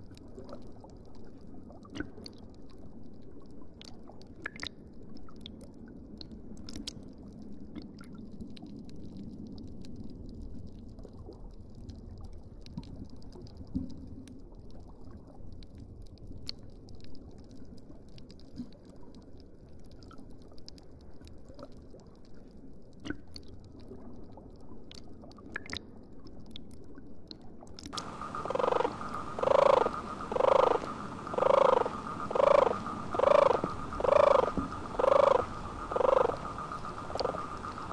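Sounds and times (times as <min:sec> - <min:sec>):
underwater ambience: 0:00.0 - 0:37.9
turtle calling: 0:28.0 - 0:37.9.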